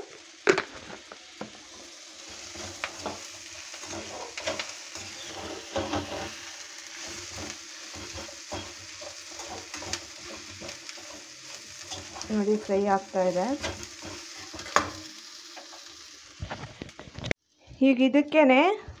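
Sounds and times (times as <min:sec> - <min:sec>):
vegetables sizzling in a pan: 0:00.0 - 0:17.3
ladle scraping a pan: 0:01.7 - 0:12.4, 0:13.5 - 0:16.8.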